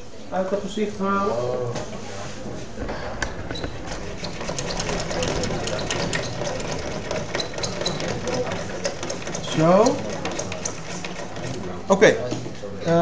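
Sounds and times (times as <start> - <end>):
clicking and rubbing on a board: 2.5 - 12.7.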